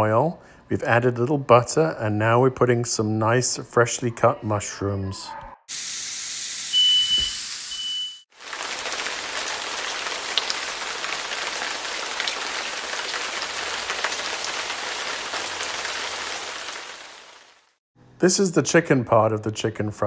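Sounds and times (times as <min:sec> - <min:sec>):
short high beep: 0:06.7 - 0:08.2
mushrooms sizzling in pan: 0:08.3 - 0:17.5.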